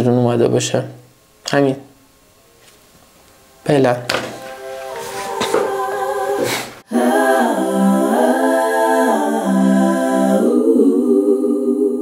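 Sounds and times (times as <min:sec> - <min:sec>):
a cappella vocal jingle: 0:03.6 - 0:12.0.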